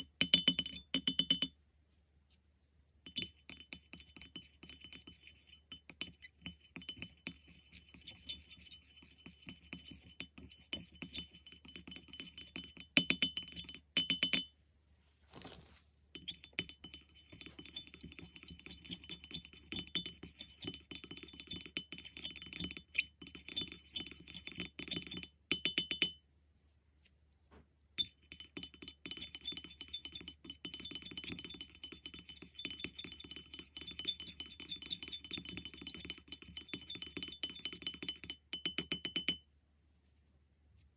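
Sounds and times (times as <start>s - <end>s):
metal spatula clinking on ceramic: 0.0s - 1.5s, 3.1s - 14.5s, 16.2s - 26.2s, 28.0s - 39.4s.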